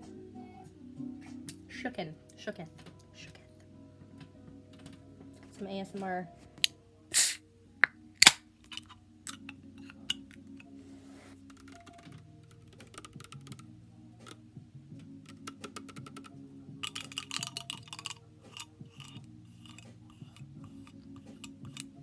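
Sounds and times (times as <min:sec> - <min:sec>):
fingernails tapping on a drink can: 0:11.5 - 0:13.6, 0:15.3 - 0:21.9.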